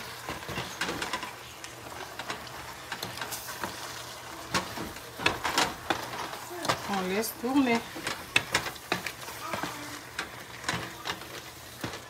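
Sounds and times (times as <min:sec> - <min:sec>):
low sizzle: 0:00.0 - 0:12.0
wooden spoon knocking a pot: 0:04.5 - 0:12.0.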